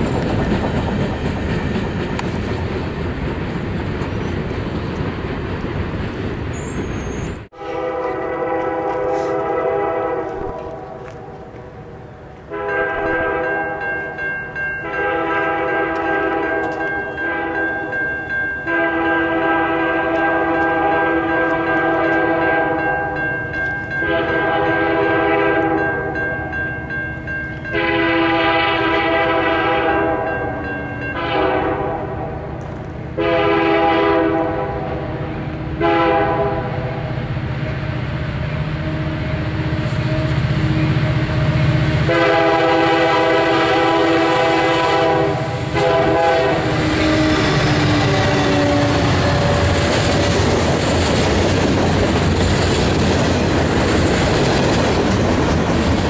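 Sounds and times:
train cars clattering on rails: 0:00.0 - 0:29.8, 0:41.5 - 0:56.0
train rumble: 0:00.0 - 0:56.0
train air horn blasts: 0:07.5 - 0:11.5, 0:12.4 - 0:13.9, 0:14.8 - 0:17.6, 0:18.6 - 0:23.2, 0:24.0 - 0:26.1, 0:27.7 - 0:50.4.

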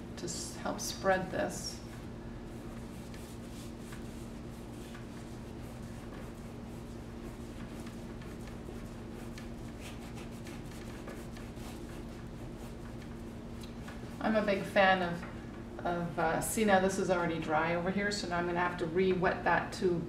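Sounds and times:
paintbrush rubbing on canvas: 0:00.8 - 0:14.5.

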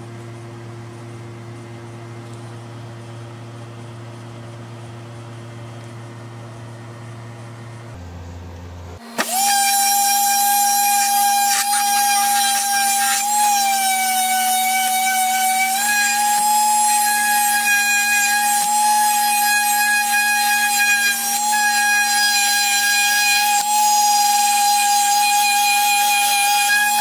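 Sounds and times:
electric sander whining: 0:09.0 - 0:27.0.

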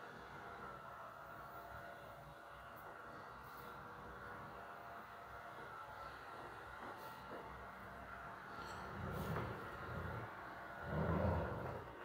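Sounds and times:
faint steady whine: 0:00.0 - 0:12.0.

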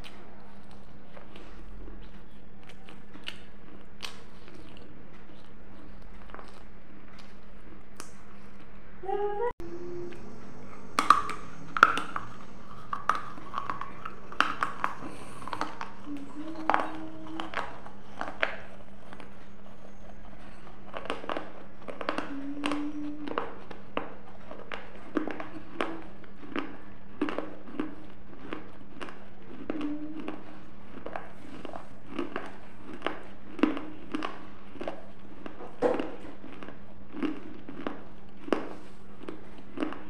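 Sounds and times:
lip smacks and mouth clicks: 0:00.0 - 0:08.8, 0:10.1 - 0:40.0
low humming: 0:05.5 - 0:34.8.

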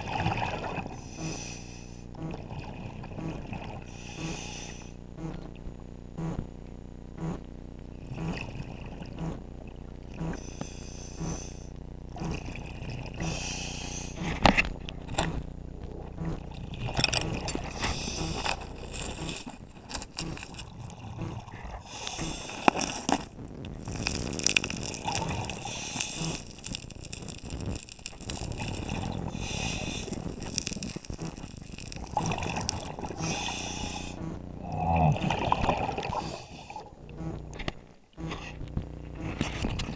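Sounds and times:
gurgling bubbles: 0:00.0 - 0:01.4, 0:02.1 - 0:04.7, 0:08.0 - 0:10.6, 0:12.1 - 0:37.8
diver breathing through regulator: 0:00.4 - 0:02.4, 0:03.2 - 0:05.0, 0:10.2 - 0:14.6, 0:17.2 - 0:37.0.

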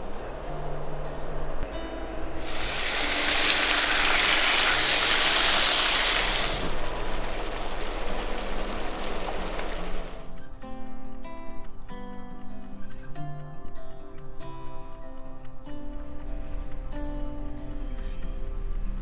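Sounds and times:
meat sizzling in hot oil: 0:02.4 - 0:10.3.

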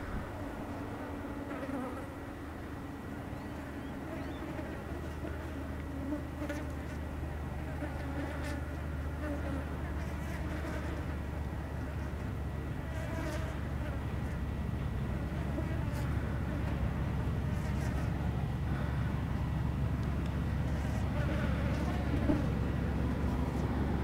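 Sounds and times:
insects buzzing: 0:00.0 - 0:24.0
truck engine drone: 0:00.0 - 0:24.0.

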